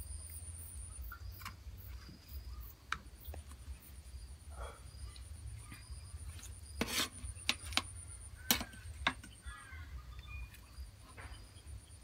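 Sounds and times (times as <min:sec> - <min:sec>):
bird chirping faintly: 0:00.0 - 0:12.0.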